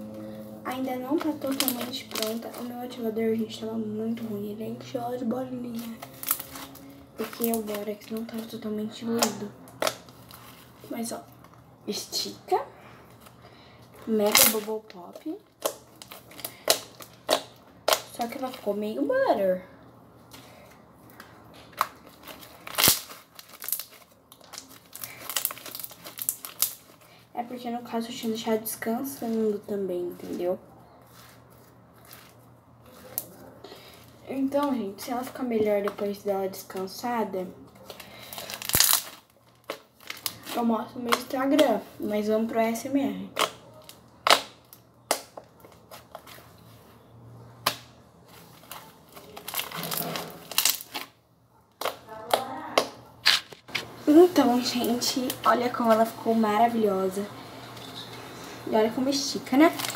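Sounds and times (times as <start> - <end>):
slime crackling and popping: 0.7 - 3.0, 5.3 - 11.6, 14.1 - 18.8, 21.1 - 27.1, 37.8 - 41.9, 43.2 - 46.5, 47.6 - 51.2, 51.8 - 56.2, 59.1 - 59.9
slime clicking and popping: 43.4 - 45.4.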